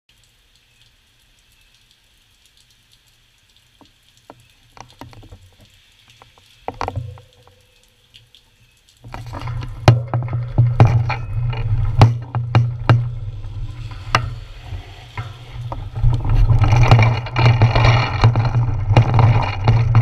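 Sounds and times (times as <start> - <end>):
faint rain hiss: 0.1 - 20.0
bicycle rolling on wet gravel: 3.7 - 20.0
ringing knock: 9.8 - 14.6.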